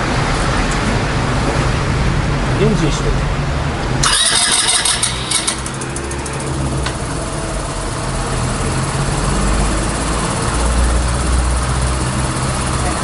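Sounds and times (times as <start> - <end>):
scooter engine idling: 4.0 - 13.0.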